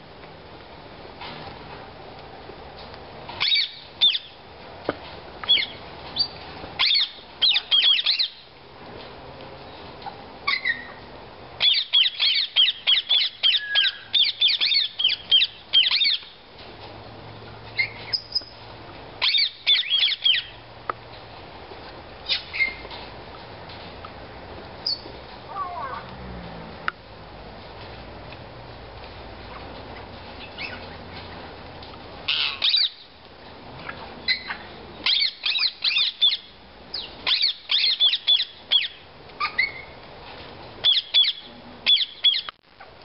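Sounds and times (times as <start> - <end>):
parakeets squawking: 3.4 - 4.3, 5.5 - 8.4, 10.5 - 10.9, 11.6 - 16.3, 19.2 - 20.6, 30.0 - 31.0, 32.2 - 33.0, 34.3 - 40.0, 40.8 - 42.5.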